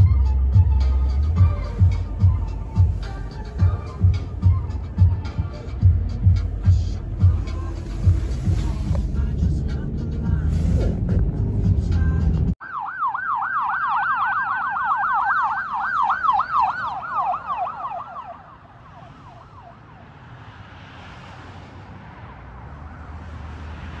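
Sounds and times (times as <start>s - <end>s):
ambulance siren yelping: 0.0s - 6.4s, 12.6s - 20.2s
low rumble: 0.0s - 12.6s.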